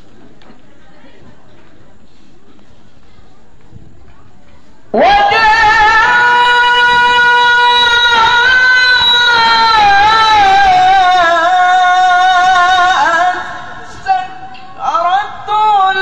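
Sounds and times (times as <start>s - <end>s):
man chanting through a microphone: 5.0s - 16.0s.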